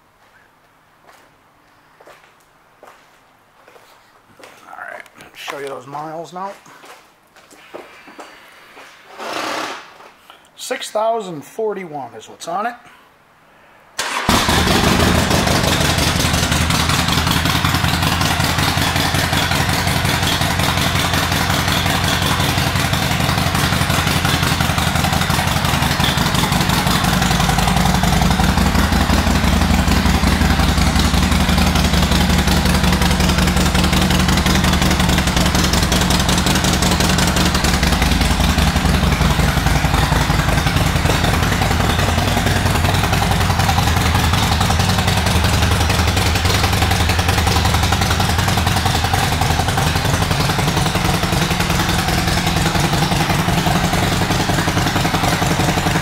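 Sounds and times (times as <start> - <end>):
motorcycle engine rumbling: 14.0 - 56.0.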